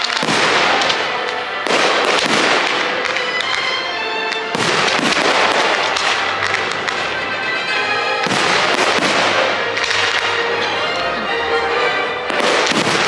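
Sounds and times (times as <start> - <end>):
fireworks bursting: 0.0 - 11.3, 11.9 - 13.0
music with held notes: 0.0 - 13.0.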